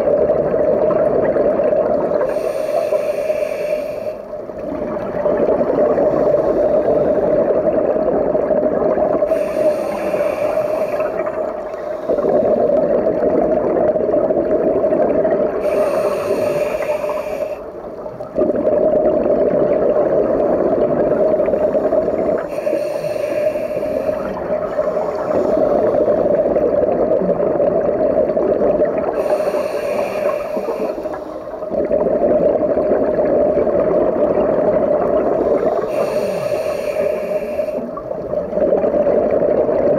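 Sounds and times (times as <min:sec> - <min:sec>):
bubbling regulator exhales: 0:00.0 - 0:39.9
hissing regulator inhale: 0:02.2 - 0:04.6, 0:05.9 - 0:07.6, 0:09.2 - 0:12.8, 0:15.6 - 0:17.9, 0:21.2 - 0:26.3, 0:29.1 - 0:31.8, 0:35.2 - 0:38.2.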